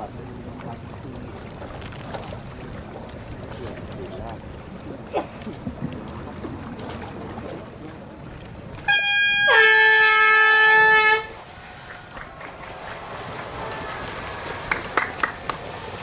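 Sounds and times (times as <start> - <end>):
race starting horn: 8.9 - 11.4.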